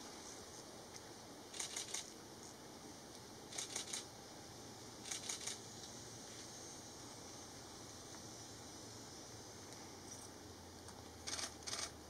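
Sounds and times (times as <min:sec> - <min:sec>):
camera shutter bursts: 0:01.5 - 0:02.1, 0:03.5 - 0:04.1, 0:05.0 - 0:05.6, 0:11.3 - 0:12.0.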